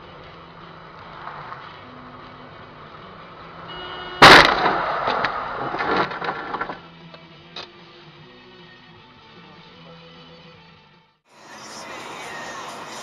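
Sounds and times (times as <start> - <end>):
loud car crash: 4.2 - 6.8
car parts clattering and scraping: 4.2 - 6.9.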